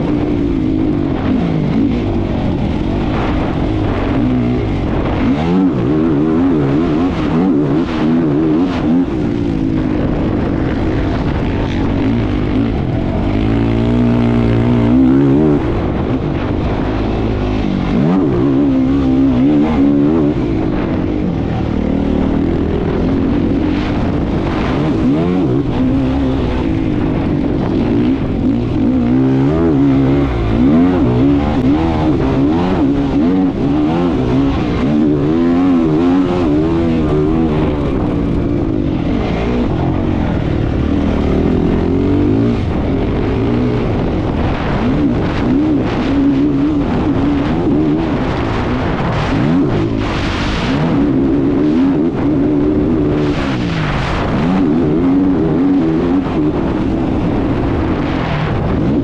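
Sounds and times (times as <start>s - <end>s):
engine revving through gear changes: 11.9s - 59.0s.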